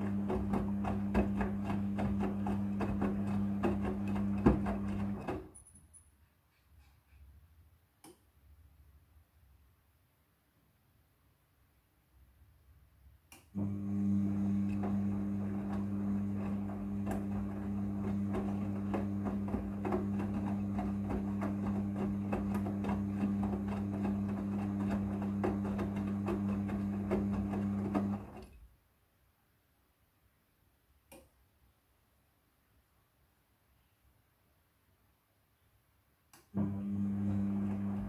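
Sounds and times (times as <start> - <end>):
washing machine motor hum: 0.0 - 5.5, 13.6 - 28.5, 36.6 - 38.0.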